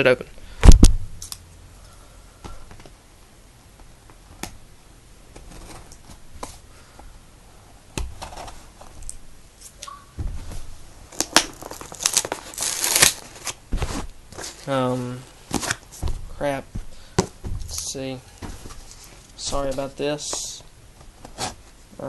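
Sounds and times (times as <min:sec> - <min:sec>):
packaging crinkling: 0:11.1 - 0:16.3.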